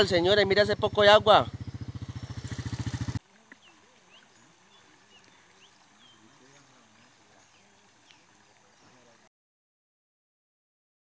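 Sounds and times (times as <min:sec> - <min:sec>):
bird chirps: 0:00.4 - 0:09.2.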